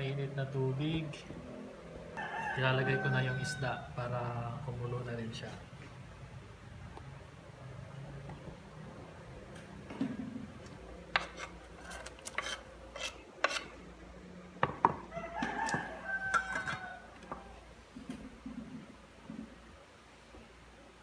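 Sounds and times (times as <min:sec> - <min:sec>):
knife scraping on cutting board: 0:11.1 - 0:13.8.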